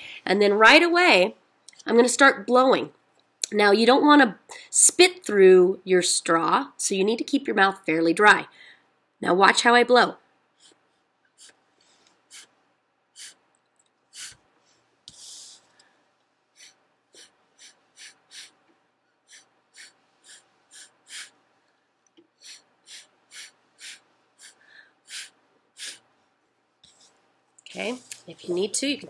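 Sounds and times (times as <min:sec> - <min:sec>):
puffs of breath through a straw: 0:11.4 - 0:12.6, 0:13.2 - 0:13.4, 0:14.1 - 0:16.0, 0:16.6 - 0:18.6, 0:19.3 - 0:21.4, 0:22.4 - 0:26.0.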